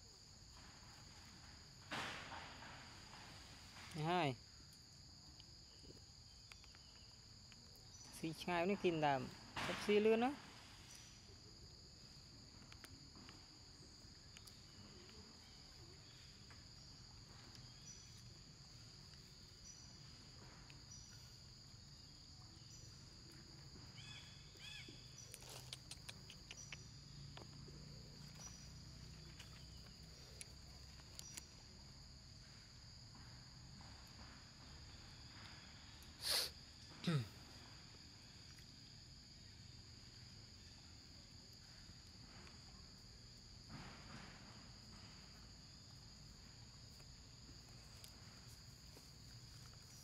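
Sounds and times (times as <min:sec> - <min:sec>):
insects droning: 0:00.0 - 0:50.0
short insect chirp: 0:00.0 - 0:50.0
faint clicks: 0:25.2 - 0:27.6.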